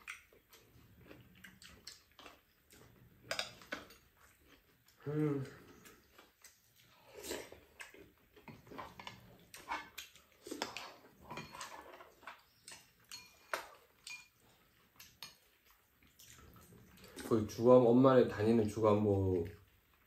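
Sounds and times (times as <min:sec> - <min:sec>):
chewing and slurping: 0:00.0 - 0:17.6
metal spoon scraping pan: 0:10.6 - 0:14.3.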